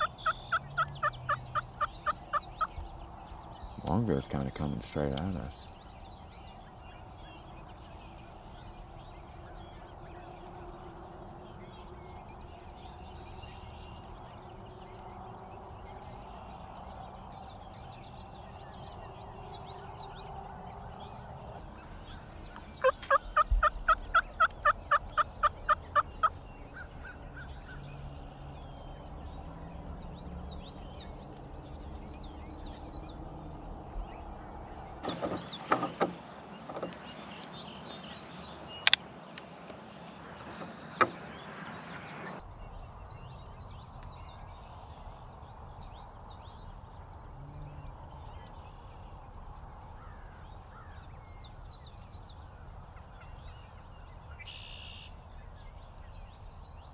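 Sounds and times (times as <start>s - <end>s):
songbirds chirping: 0.0s - 56.9s
wild turkey yelping: 22.8s - 26.3s.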